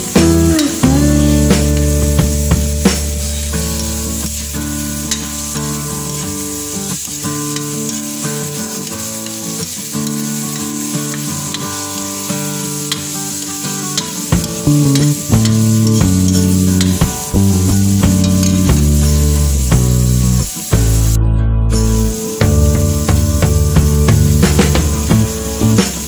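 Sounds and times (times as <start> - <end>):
background music: 0.0 - 7.2, 12.0 - 26.0
oil sizzling in a wok: 0.0 - 26.0.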